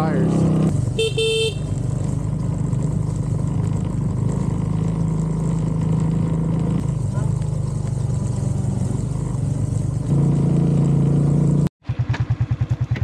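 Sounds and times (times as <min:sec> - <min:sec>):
motorbike engine running: 0:00.0 - 0:13.0.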